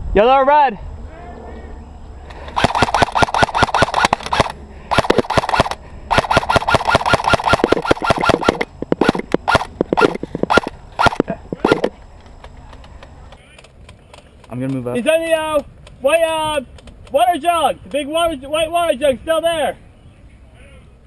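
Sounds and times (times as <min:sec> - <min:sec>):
airsoft rifle firing: 0:02.5 - 0:11.9.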